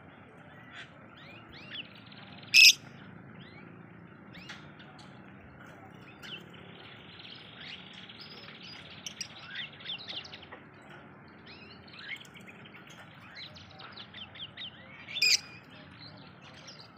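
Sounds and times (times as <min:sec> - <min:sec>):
lovebird chattering: 0:02.5 - 0:02.8.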